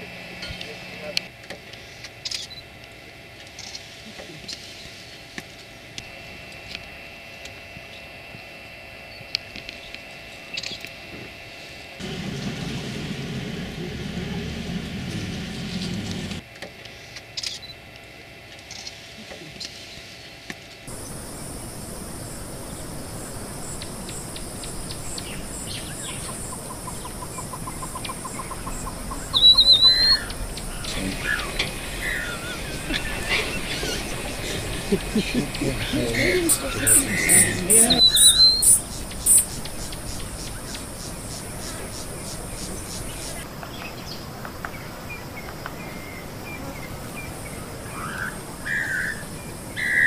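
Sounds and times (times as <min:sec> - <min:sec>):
loud high warbling bird call: 0:20.9 - 0:40.8, 0:47.8 - 0:50.0
birds calling: 0:20.9 - 0:50.0
low steady hum: 0:20.9 - 0:50.0.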